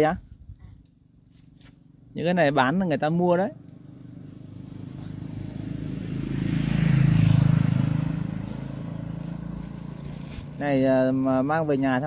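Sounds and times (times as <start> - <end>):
vehicle driving past: 3.6 - 10.7.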